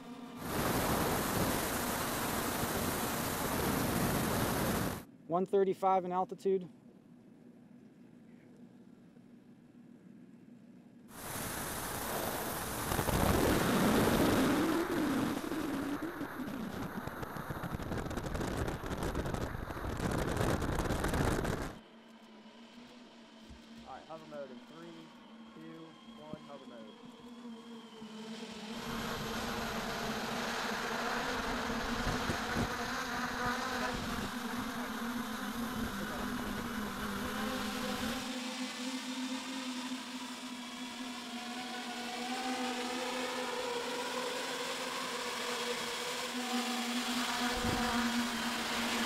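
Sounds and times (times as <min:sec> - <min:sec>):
electric propellers droning: 0:00.0 - 0:05.1, 0:11.1 - 0:49.0
wind rush over microphone: 0:00.4 - 0:05.0, 0:11.2 - 0:21.8, 0:31.5 - 0:34.7, 0:47.5 - 0:48.4.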